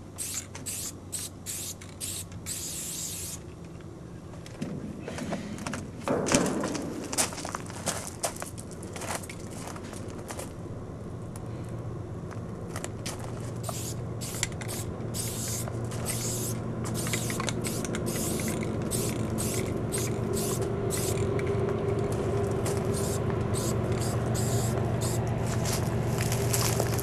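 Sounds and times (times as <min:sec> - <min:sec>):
low steady hum: 0:00.0 - 0:27.0
spray-paint can hissing: 0:00.2 - 0:03.4, 0:13.6 - 0:21.2, 0:22.9 - 0:25.2.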